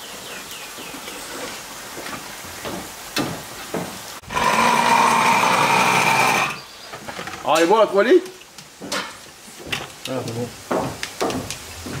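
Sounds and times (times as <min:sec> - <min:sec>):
electric spice grinder whining: 0:04.3 - 0:06.6
knocks: 0:10.7 - 0:12.0.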